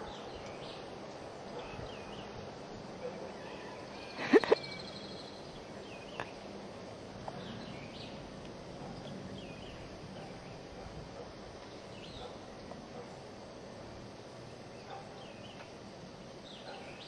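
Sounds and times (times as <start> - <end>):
faint bird chirps: 3.0 - 6.4.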